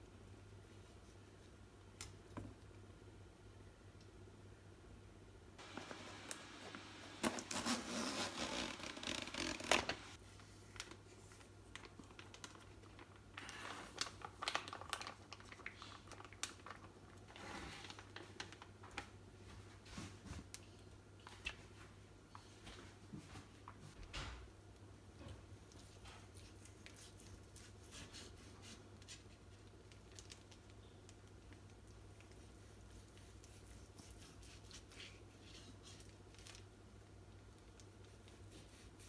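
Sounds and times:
plastic bag crinkling: 5.6s - 19.1s
rustling and crinkling: 5.6s - 24.4s, 25.1s - 39.0s.

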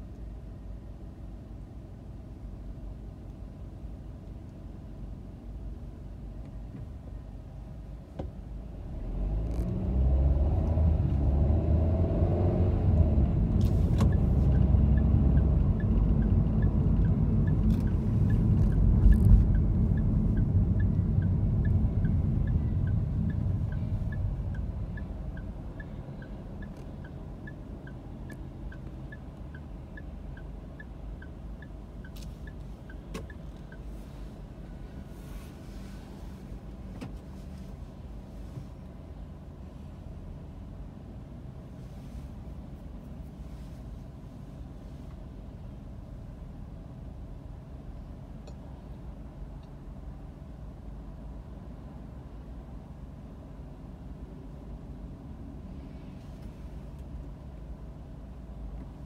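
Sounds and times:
car engine and tyre rumble: 0.0s - 59.0s
turn signal ticking: 9.4s - 37.4s, 48.1s - 50.1s.

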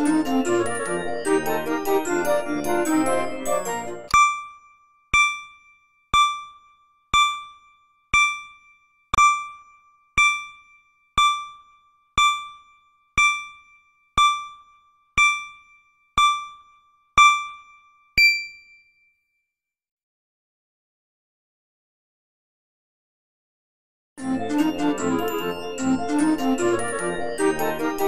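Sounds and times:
timer electronic ding: 4.1s - 19.1s
keyboard jingle: 18.2s - 18.6s.

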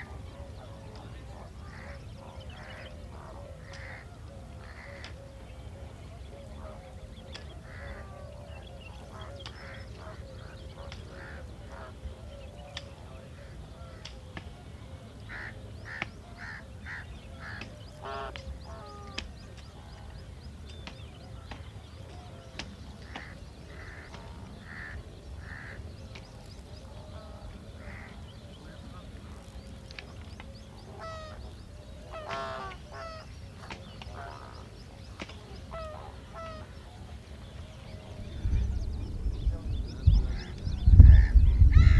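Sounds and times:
birds chirping: 0.0s - 41.9s
flamingos honking: 15.3s - 19.3s, 23.0s - 25.9s, 26.8s - 30.1s, 30.8s - 37.4s
low rumble: 37.9s - 41.9s.

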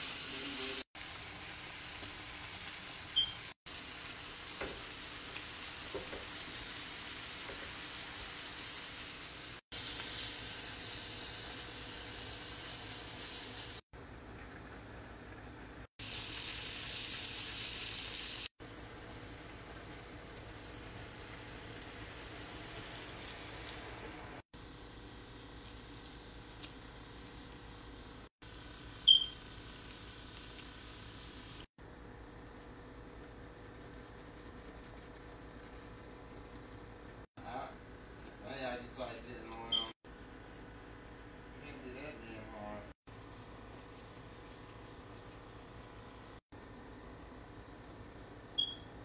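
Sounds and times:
food sizzling in a pan: 0.0s - 13.8s, 16.0s - 26.6s.

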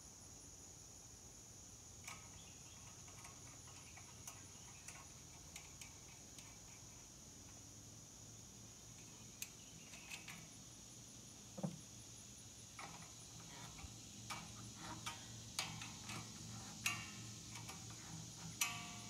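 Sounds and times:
tools clicking and tapping: 2.0s - 6.9s, 12.8s - 19.0s.

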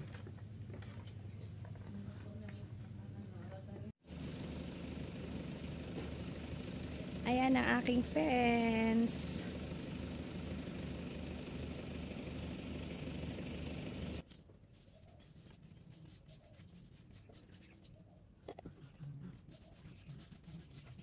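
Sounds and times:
steady low hum and rush: 4.0s - 14.2s.

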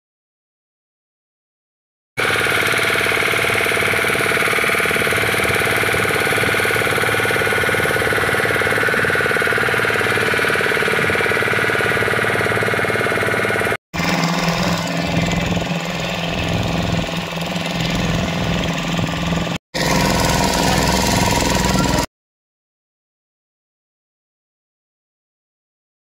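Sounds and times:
motorboat engine running: 2.2s - 22.1s.

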